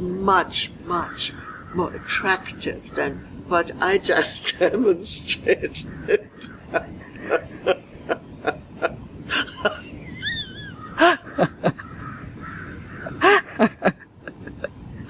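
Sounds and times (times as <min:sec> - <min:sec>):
elderly woman laughing: 0:05.3 - 0:12.1, 0:13.0 - 0:15.0.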